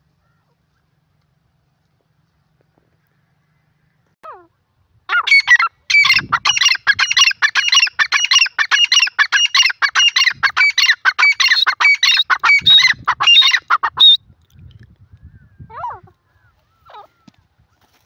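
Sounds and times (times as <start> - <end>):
francolin calling: 5.1 - 14.2.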